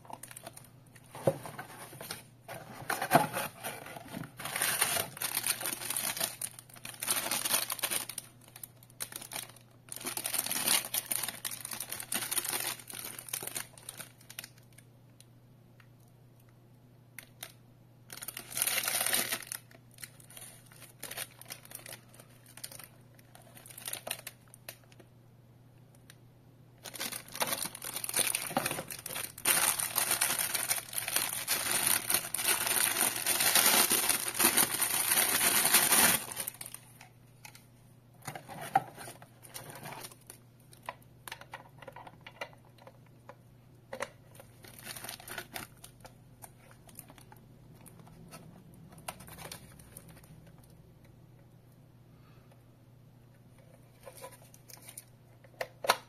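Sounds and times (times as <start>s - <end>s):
plastic bag crinkling: 0.0s - 2.2s, 2.9s - 14.8s, 18.1s - 25.0s, 26.8s - 37.6s, 43.9s - 48.1s
cardboard packaging handled: 0.1s - 14.4s, 26.8s - 36.8s.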